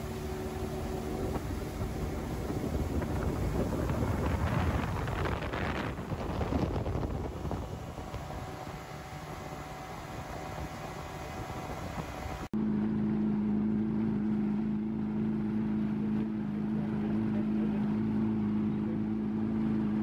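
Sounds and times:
rushing wind: 0.0 - 12.5
water washing: 0.0 - 12.5
boat engine humming: 0.0 - 20.0
motorboat running fast: 0.0 - 20.0.

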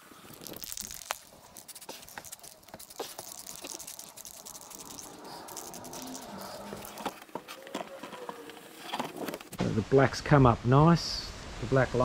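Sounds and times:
tape and cardboard rustling: 0.0 - 9.6
spray paint can hissing: 0.3 - 7.2.

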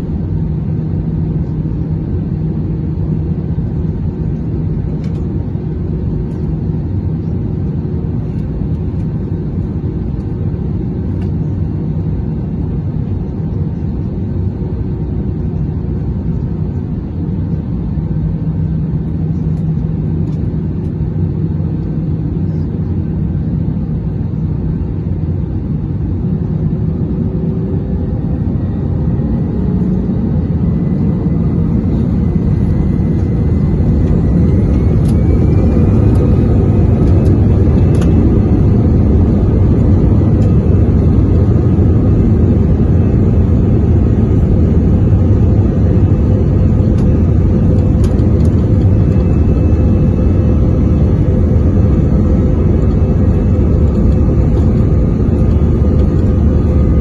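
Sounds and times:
jet engine cabin rumble: 0.0 - 57.0
engine whine spooling up: 26.2 - 57.0.

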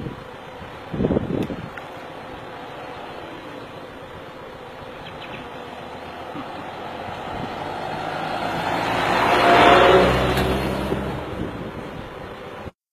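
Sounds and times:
truck driving past: 5.4 - 12.0.

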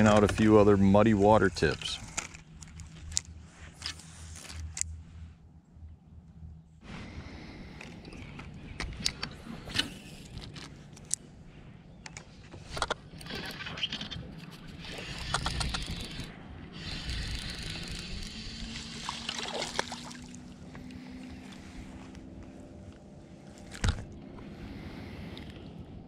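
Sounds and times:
fishing reel cranking: 14.7 - 19.0
water splashing: 18.8 - 20.5.

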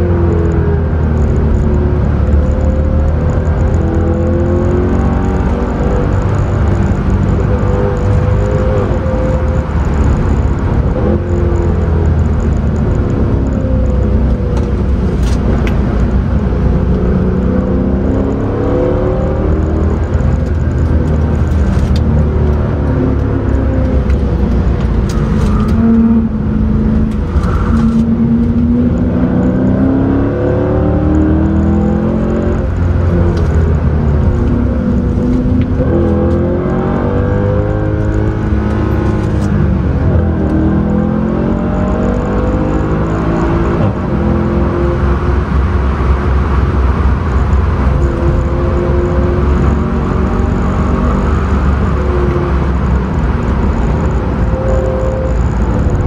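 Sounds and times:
car engine accelerating: 0.0 - 56.0
road and tyre rumble: 0.0 - 56.0.

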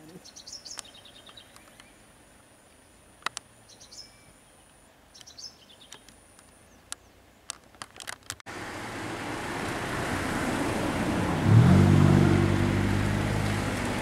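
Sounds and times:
birds chirping: 0.0 - 7.6
faint outdoor background noise: 0.0 - 14.0.

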